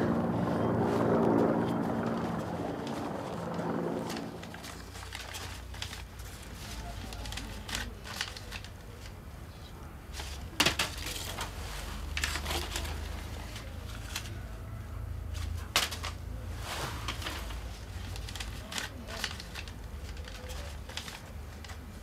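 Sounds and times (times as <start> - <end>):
paper rustling and crinkling: 1.6 - 14.6, 15.3 - 22.0
sharp paper snaps: 4.1 - 9.2, 15.4 - 16.2, 17.0 - 22.0.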